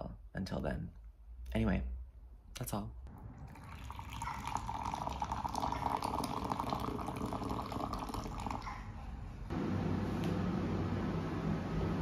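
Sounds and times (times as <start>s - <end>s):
coffee pouring into a cup: 3.2s - 8.6s.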